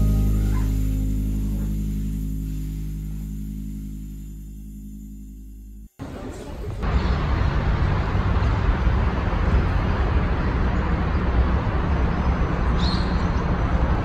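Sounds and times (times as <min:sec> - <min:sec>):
high chirp: 0:00.0 - 0:05.9.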